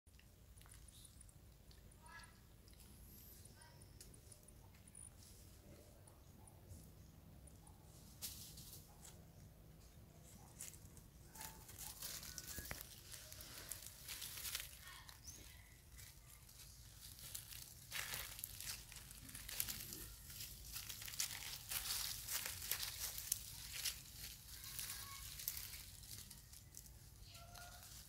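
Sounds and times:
dry leaves crackling and rustling: 8.0 - 9.2, 9.8 - 28.0.

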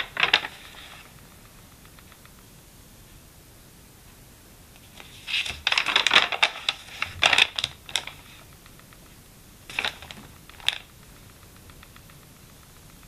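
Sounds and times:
paper page rustling: 0.0 - 1.2, 4.9 - 8.4, 9.7 - 10.9.

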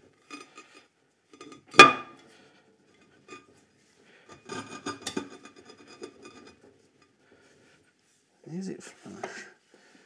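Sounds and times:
metal scraping and clinking: 4.3 - 7.1.

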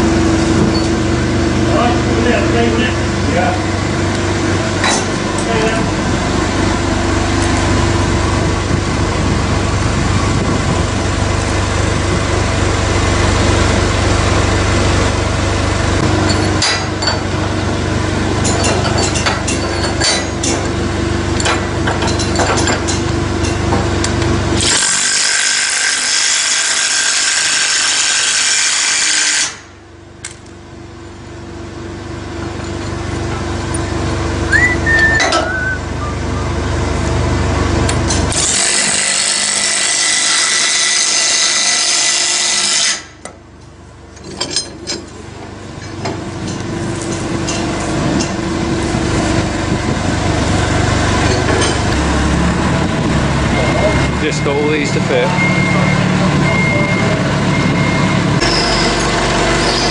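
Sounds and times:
knocks and clanks: 4.8 - 5.6, 18.4 - 20.8, 21.4 - 24.3, 35.0 - 35.6, 44.2 - 45.2, 51.2 - 52.0
machine engine running: 46.2 - 59.9.

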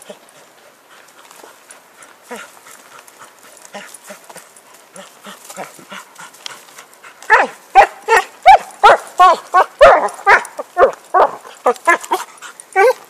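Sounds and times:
dog barking: 7.3 - 13.0.

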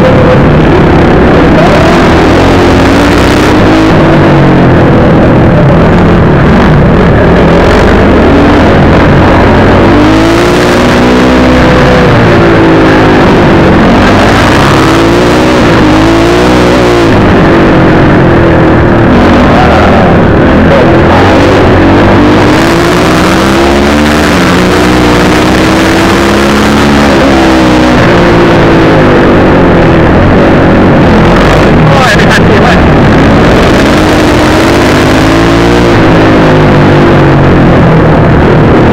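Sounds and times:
motocross bike engine revving: 0.0 - 38.9
wind rush: 11.7 - 38.9.

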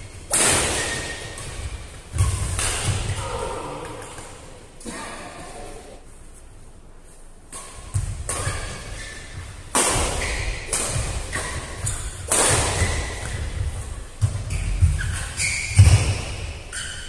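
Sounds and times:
racket striking shuttlecock: 0.2 - 3.2, 7.5 - 16.7.

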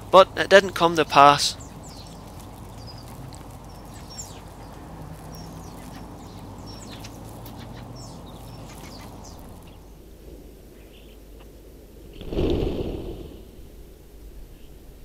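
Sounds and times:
starlings chattering: 0.0 - 10.1.

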